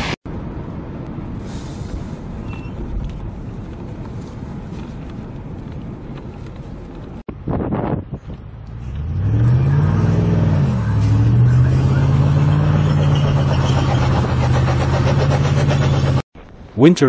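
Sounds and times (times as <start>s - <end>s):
car engine revving: 8.6s - 16.3s.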